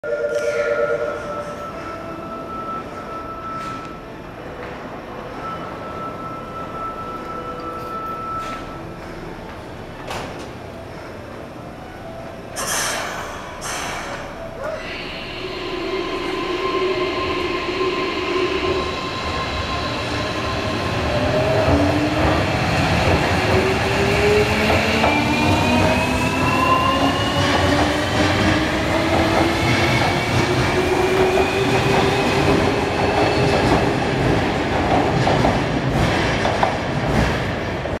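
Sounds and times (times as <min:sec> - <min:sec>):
train wheels clattering on rails: 0:21.0 - 0:38.0.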